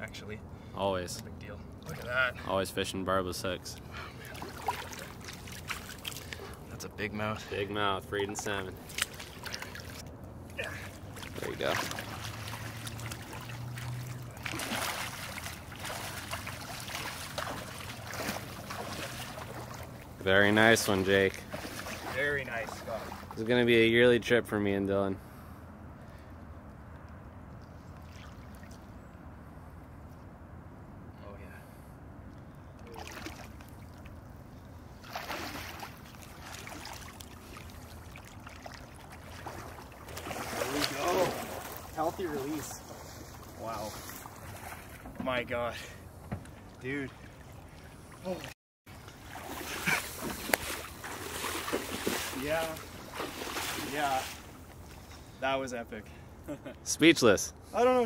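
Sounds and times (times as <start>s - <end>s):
river water splashing: 3.5s - 23.9s, 27.6s - 29.4s, 32.8s - 55.5s.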